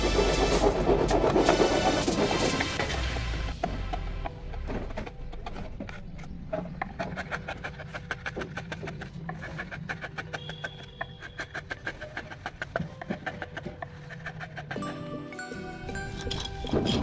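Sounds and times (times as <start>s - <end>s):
chisel clicking and scraping wood: 3.6s - 14.9s, 16.1s - 17.0s.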